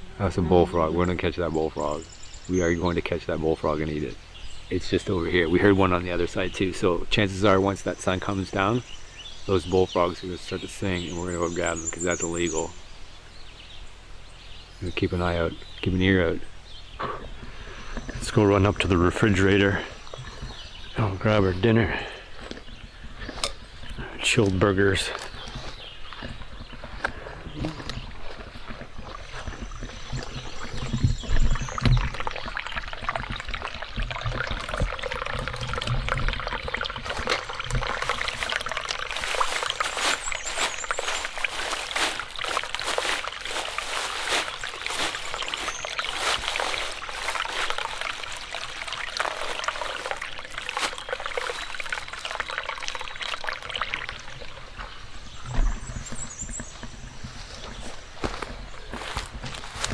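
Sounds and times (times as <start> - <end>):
water trickling among rocks: 22.6 - 57.5
plastic bag crinkling: 38.3 - 51.7.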